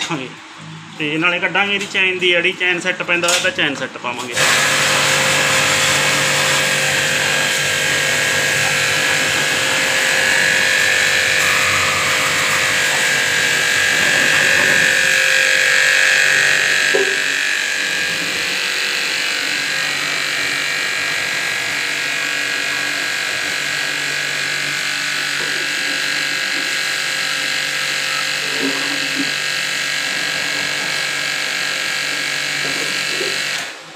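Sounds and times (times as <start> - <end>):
pressure washer motor humming: 4.2 - 33.9
high-pressure water jet hissing: 4.3 - 20.6.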